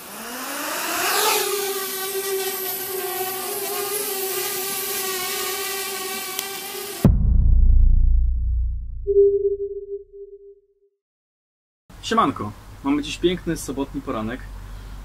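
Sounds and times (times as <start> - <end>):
loud low rumble: 7.0 - 10.2.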